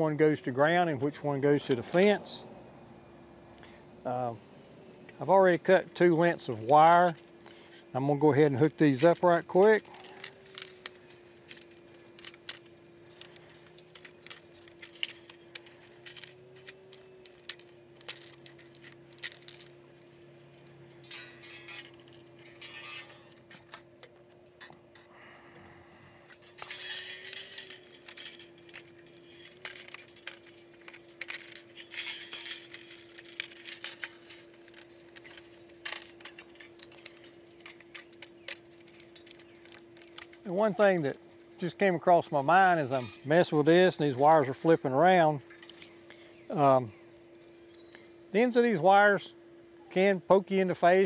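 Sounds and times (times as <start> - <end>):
faint steady hum: 0.0 - 51.0
metallic clicks of fence wire: 5.1 - 19.8, 20.9 - 25.1, 26.3 - 46.8.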